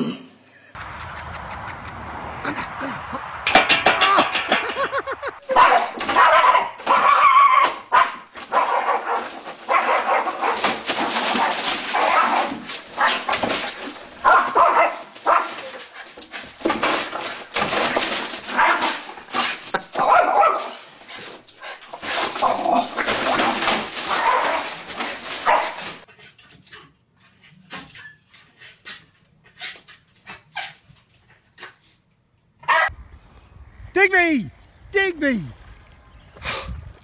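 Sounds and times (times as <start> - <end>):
small dog yapping: 5.5 - 10.7.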